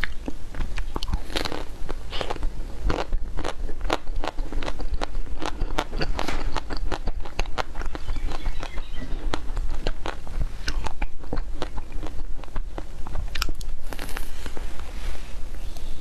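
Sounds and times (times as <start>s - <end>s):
crunching ice cream shell: 0.0s - 14.6s.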